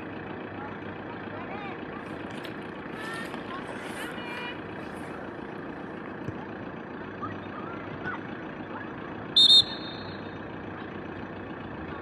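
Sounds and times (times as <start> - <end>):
referee whistle blasts: 9.4 - 10.3.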